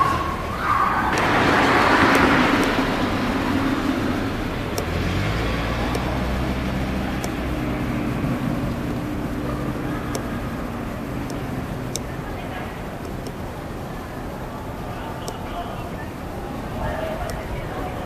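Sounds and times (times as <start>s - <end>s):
low engine rumble: 0.0s - 18.0s
vehicle passing: 0.0s - 18.0s
faint ticks: 4.7s - 7.7s.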